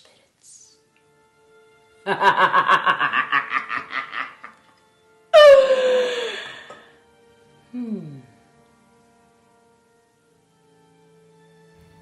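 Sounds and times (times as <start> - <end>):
woman cackling: 2.1 - 4.6, 5.4 - 6.8
woman crying out descending: 5.4 - 6.8.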